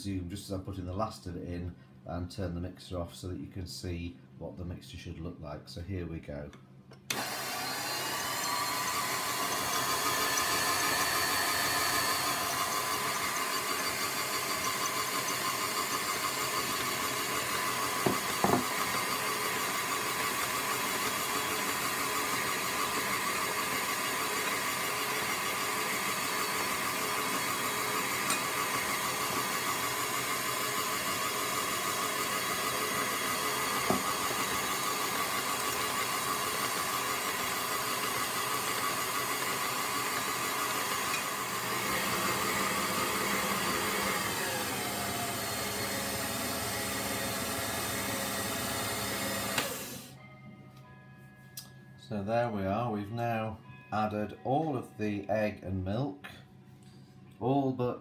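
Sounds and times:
stand mixer motor whining: 7.1s - 50.2s.

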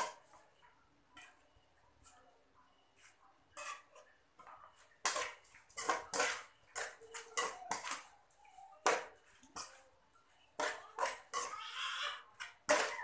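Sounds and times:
metal spoon scraping a pot: 3.0s - 13.0s.

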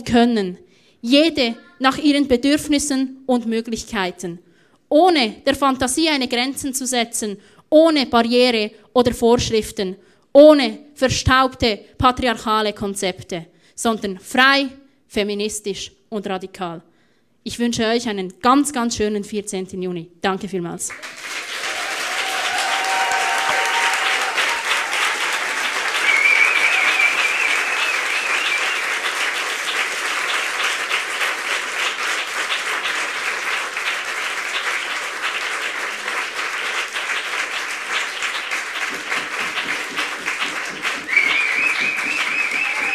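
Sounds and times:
audience applauding: 20.9s - 42.9s.

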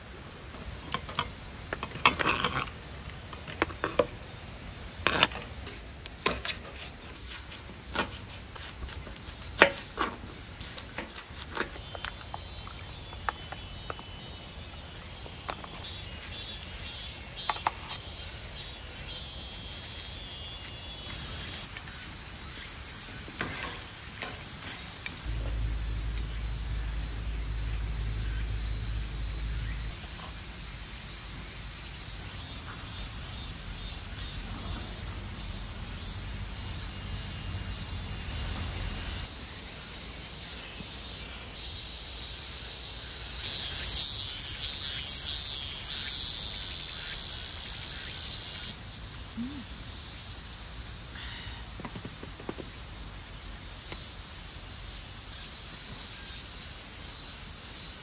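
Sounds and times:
insects chirring: 0.0s - 58.0s
low rumble: 25.3s - 30.0s.

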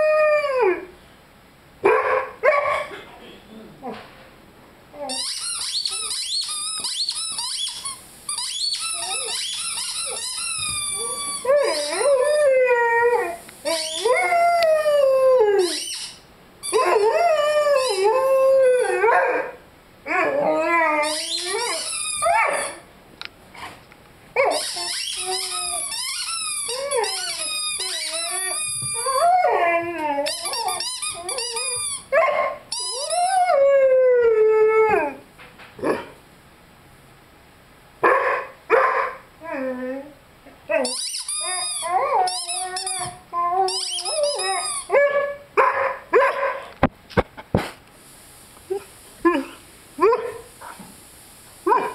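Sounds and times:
squeaky toy squeaks: 5.1s - 12.4s, 13.7s - 14.2s, 15.6s - 17.1s, 17.8s - 18.1s, 20.9s - 22.8s, 24.4s - 29.2s, 30.2s - 32.1s, 32.7s - 33.3s, 40.8s - 44.9s
puppy howling: 11.0s - 16.0s, 16.7s - 22.8s, 26.7s - 35.2s, 39.4s - 46.4s.

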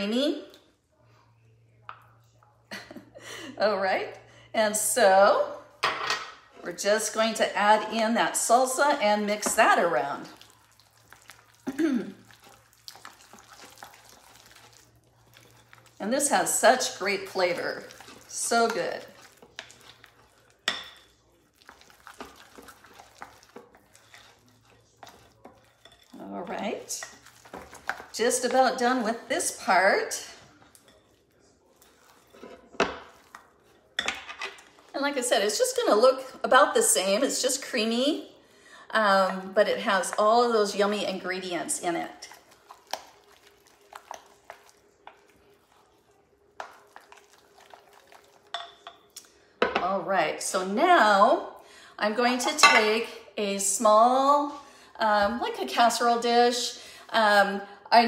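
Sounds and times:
utensil stirring thick dip: 7.1s - 37.8s, 39.1s - 49.3s
spatula scraping glass bowl: 22.0s - 29.1s.

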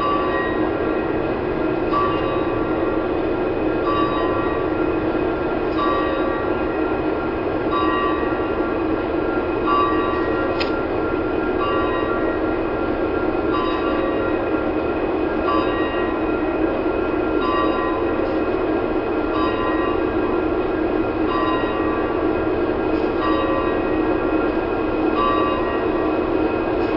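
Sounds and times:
diesel locomotive engine rumble: 0.0s - 26.9s
locomotive bell ringing: 0.0s - 26.9s.

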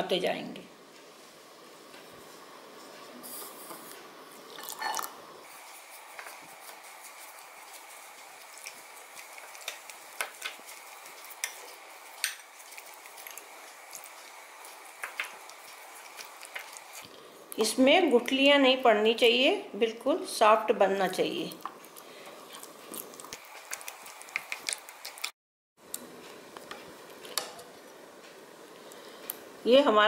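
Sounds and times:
wet squishing of batter: 4.6s - 17.7s, 21.0s - 25.4s.

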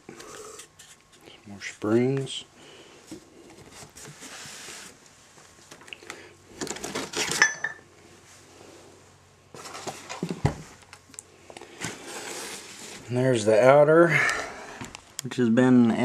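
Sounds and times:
plastic packaging rustling: 6.5s - 7.5s.

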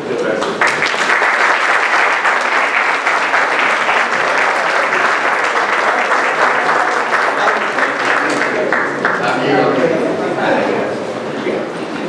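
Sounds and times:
audience applauding: 0.4s - 9.8s.

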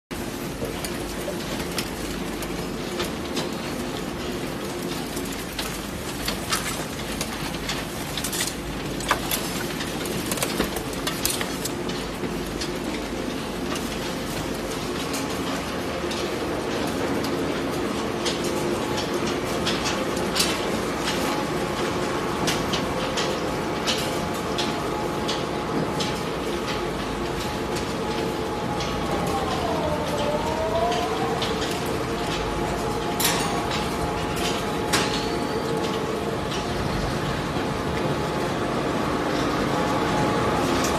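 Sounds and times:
machinery rumble and hum: 0.1s - 40.9s
irregular clicks and cracks: 4.7s - 12.7s.

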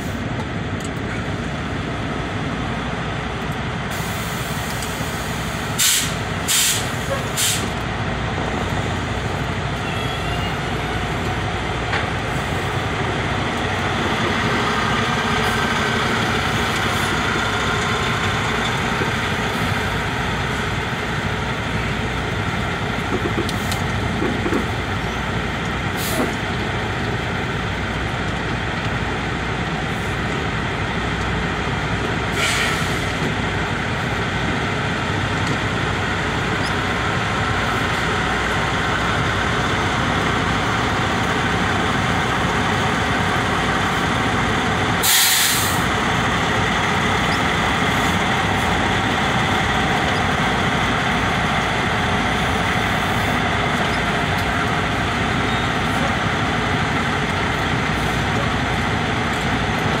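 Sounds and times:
truck engine and road noise: 0.0s - 60.0s
air brake hisses: 3.9s - 7.8s, 26.0s - 26.4s, 32.3s - 33.2s, 45.0s - 45.9s.

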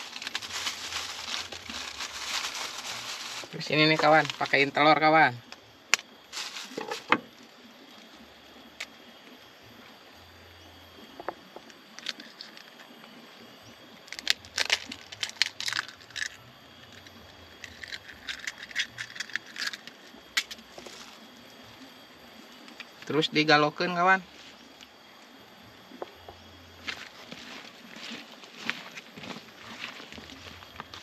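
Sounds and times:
egg cracking: 17.6s - 20.9s.

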